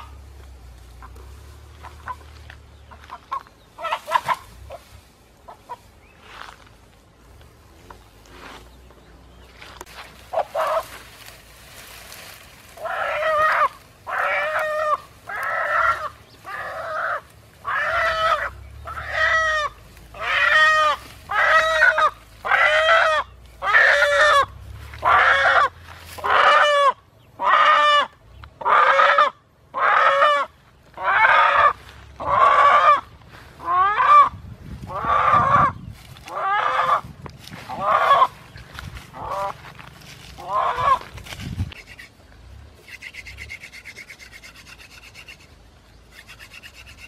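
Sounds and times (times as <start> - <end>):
chicken squawking: 2.9 - 4.9, 10.3 - 11.0, 12.8 - 37.1, 37.7 - 38.5, 39.1 - 39.6, 40.4 - 42.2.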